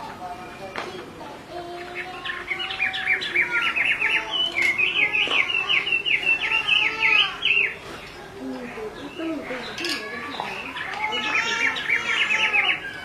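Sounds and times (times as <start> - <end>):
bird calling in falling notes: 9.0 - 13.0.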